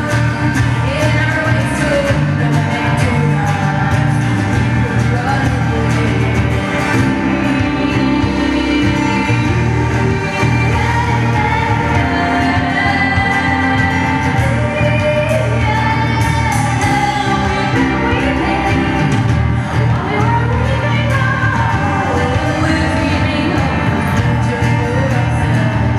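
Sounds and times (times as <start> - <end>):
bass: 0.0 - 25.9
drums: 0.0 - 25.9
electric guitar: 0.0 - 25.9
woman singing: 0.0 - 25.9.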